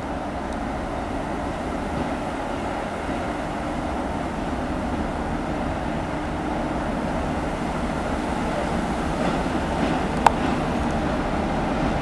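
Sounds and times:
diesel locomotive engine running: 0.0s - 12.0s.

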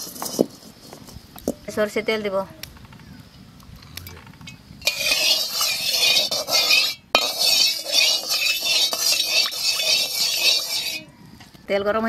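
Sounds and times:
metal spatula scraping pan: 4.8s - 11.1s
oil sizzling in a wok: 4.8s - 11.1s.

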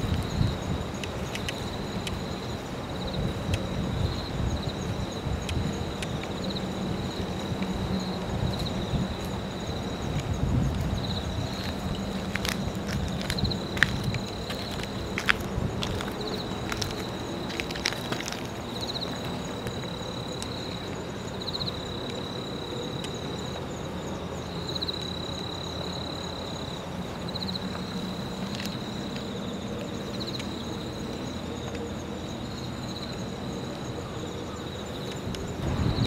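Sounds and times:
insects trilling: 0.0s - 36.0s.

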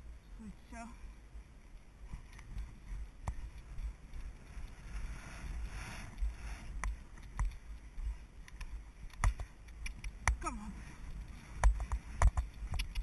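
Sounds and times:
wind rushing on microphone: 1.4s - 13.0s
horse hooves drumming on turf: 1.7s - 13.0s
sharp clicks: 8.4s - 10.4s, 11.5s - 13.0s.

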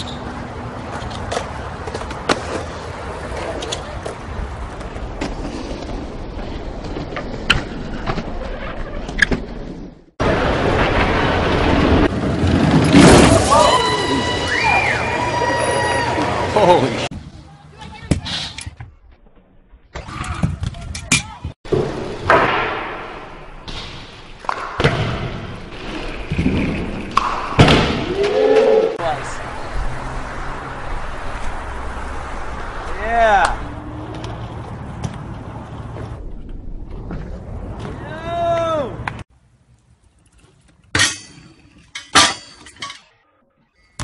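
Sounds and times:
bike tyres rushing on concrete: 0.0s - 17.5s, 21.7s - 40.9s
bike clicks and knocks: 33.4s - 39.2s.

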